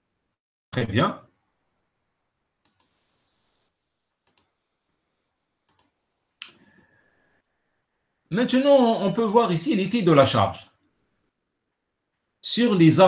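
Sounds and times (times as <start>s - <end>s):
computer mouse double clicks: 5.7s - 5.9s.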